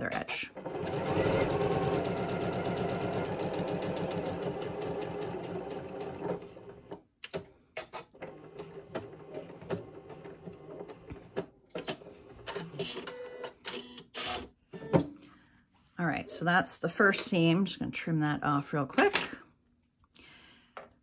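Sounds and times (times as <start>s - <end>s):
sewing machine stitching: 0.5s - 7.0s, 8.2s - 14.5s.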